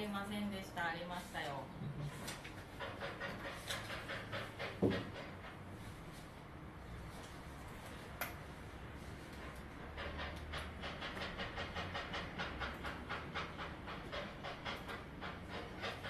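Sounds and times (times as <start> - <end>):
steam locomotive chuffing: 2.6 - 5.8, 9.4 - 16.0.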